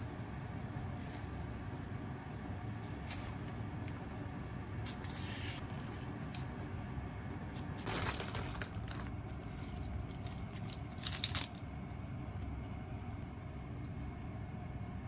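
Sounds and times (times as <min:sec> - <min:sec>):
steady low hum: 0:00.0 - 0:15.0
lettuce leaves tearing and crinkling: 0:07.8 - 0:11.6.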